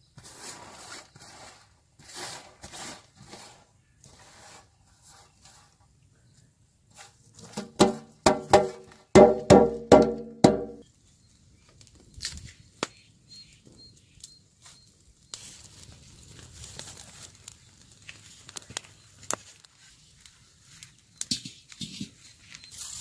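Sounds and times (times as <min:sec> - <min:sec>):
wood fire crackling: 0:14.0 - 0:23.0.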